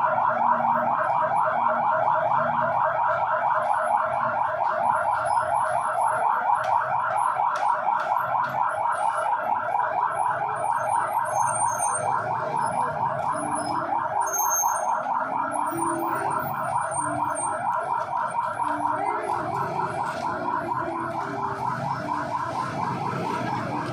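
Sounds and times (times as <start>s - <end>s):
electronic warbling alarm: 9.6s - 23.9s.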